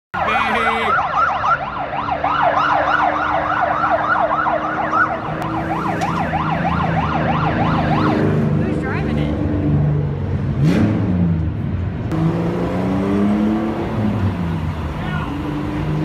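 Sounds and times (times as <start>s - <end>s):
siren yelping: 0.2s - 8.6s.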